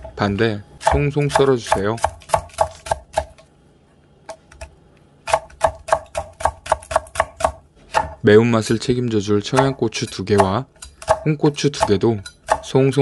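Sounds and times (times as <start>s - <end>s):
knife chopping on wooden board: 0.8s - 3.4s, 4.3s - 8.2s, 9.5s - 13.0s.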